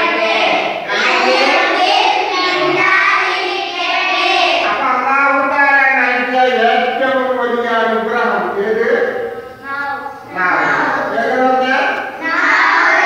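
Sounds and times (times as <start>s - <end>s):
boys chanting in unison: 0.0s - 5.4s, 10.2s - 13.0s.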